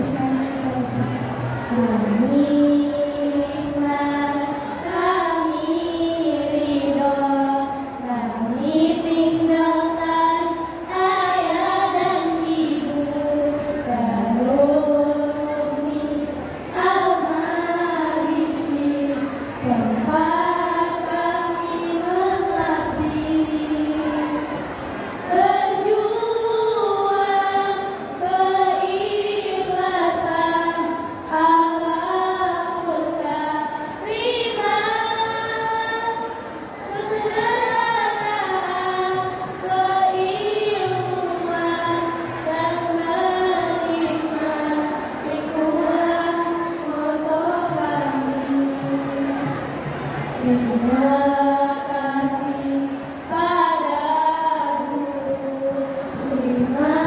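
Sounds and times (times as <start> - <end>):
girls singing in unison: 0.0 - 57.0.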